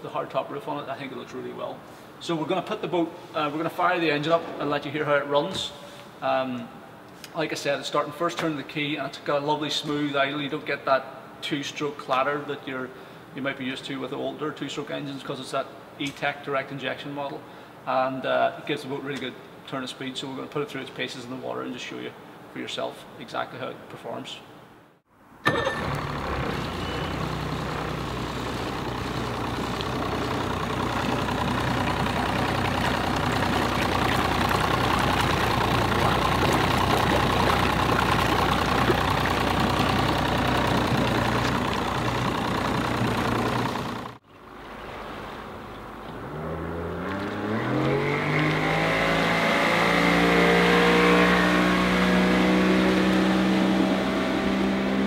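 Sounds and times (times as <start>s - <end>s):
outboard motor running: 25.5s - 48.8s
water rushing: 25.6s - 49.0s.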